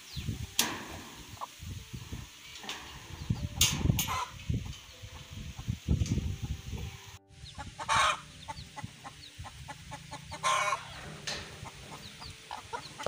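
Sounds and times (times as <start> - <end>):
chickens clucking: 0.0 - 13.0
chicken calls: 1.0 - 5.8, 7.4 - 13.0
faint high chick peeps: 6.9 - 11.0.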